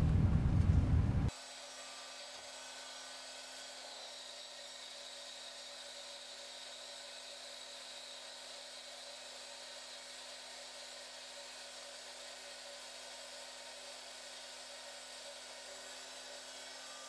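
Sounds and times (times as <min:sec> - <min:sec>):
lathe motor whine: 0:01.3 - 0:17.0.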